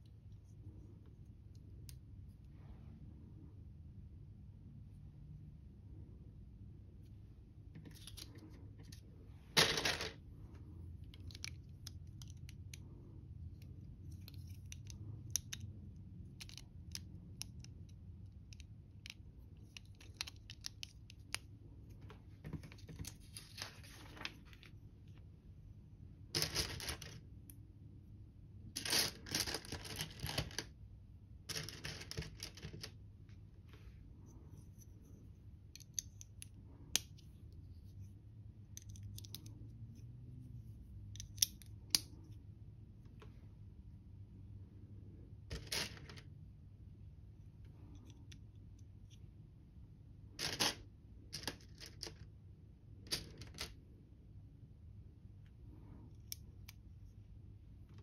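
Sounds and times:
plastic bricks clicking and scraping: 0:28.8 - 0:30.7, 0:31.5 - 0:33.0, 0:53.1 - 0:53.8.

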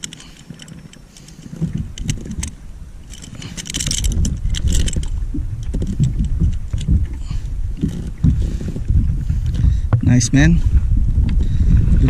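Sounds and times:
gear clinking and rattling: 0:00.0 - 0:08.8
microphone handling noise: 0:00.0 - 0:12.0
wind rumble on microphone: 0:00.0 - 0:12.0.

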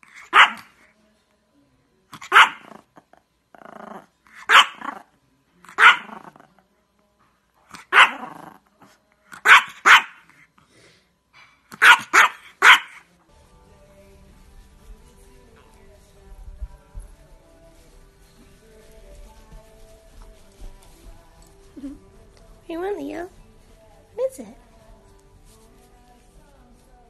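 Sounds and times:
small dog yapping: 0:00.2 - 0:00.7, 0:02.2 - 0:02.7, 0:04.5 - 0:05.0, 0:05.7 - 0:06.2, 0:07.8 - 0:08.4, 0:09.4 - 0:10.2, 0:11.8 - 0:13.0
quiet low sound: 0:13.2 - 0:27.0.

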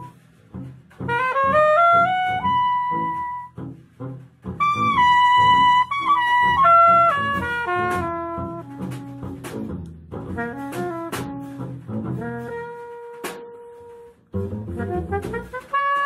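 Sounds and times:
bass: 0:00.0 - 0:16.0
saxophone playing: 0:00.0 - 0:16.0
drums with cymbal strokes: 0:06.2 - 0:14.1.

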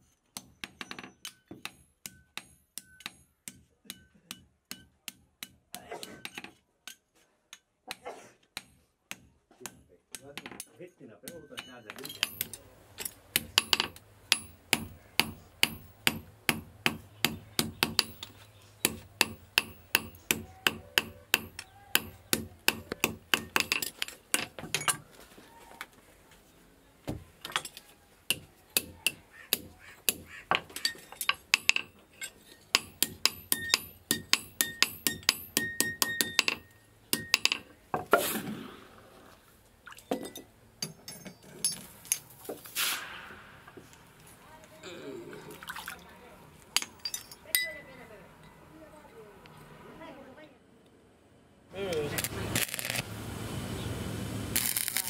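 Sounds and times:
hammer striking metal anvil: 0:11.3 - 0:25.0, 0:32.7 - 0:37.7.

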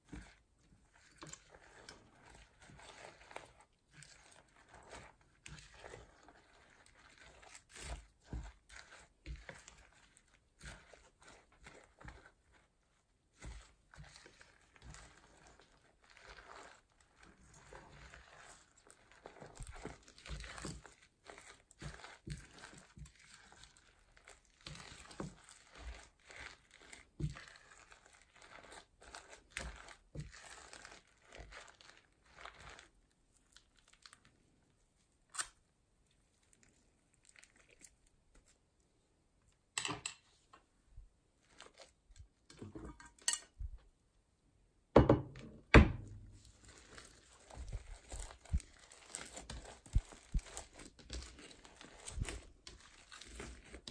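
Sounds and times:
hands squishing crunchy slime: 0:00.0 - 0:34.6, 0:36.4 - 0:38.7, 0:46.0 - 0:53.9
slime tearing: 0:35.3 - 0:35.7, 0:46.5 - 0:53.9.

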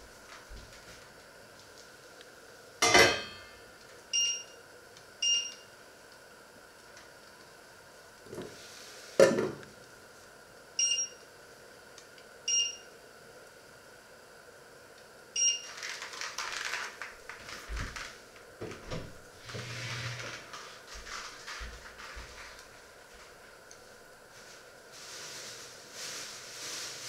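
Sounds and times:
hob touch control beeps: 0:04.2 - 0:04.5, 0:05.2 - 0:05.6, 0:10.8 - 0:11.2, 0:12.5 - 0:12.9
rustling: 0:24.3 - 0:27.0.

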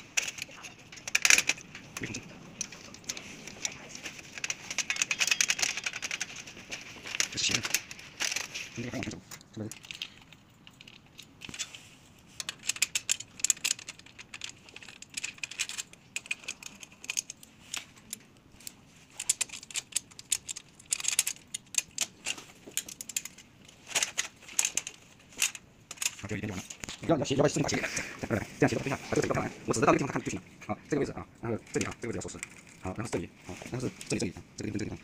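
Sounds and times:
metal parts clicking and tapping: 0:00.0 - 0:11.8, 0:12.4 - 0:27.0.

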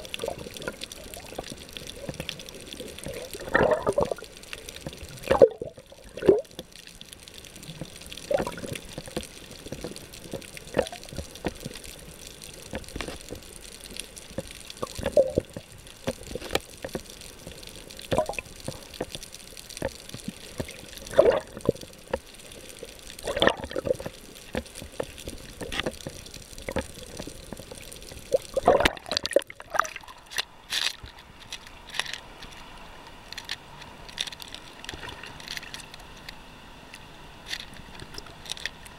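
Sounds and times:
bubbly pops: 0:00.0 - 0:06.5, 0:07.8 - 0:11.7, 0:14.8 - 0:17.0, 0:18.0 - 0:19.2, 0:19.8 - 0:22.2, 0:23.2 - 0:30.1
underwater gurgling and sloshing: 0:00.0 - 0:38.9
small waves splashing: 0:07.4 - 0:36.0.

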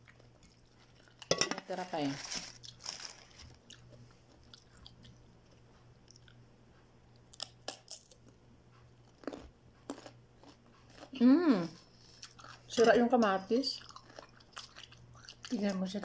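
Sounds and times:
crunchy chewing: 0:02.4 - 0:06.4, 0:07.1 - 0:12.8, 0:13.7 - 0:16.0.

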